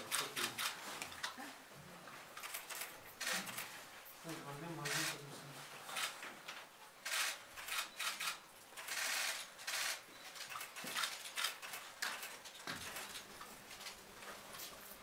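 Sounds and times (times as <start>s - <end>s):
camera shutters clicking: 0.1s - 0.8s, 2.4s - 3.7s, 5.9s - 6.2s, 7.0s - 13.3s.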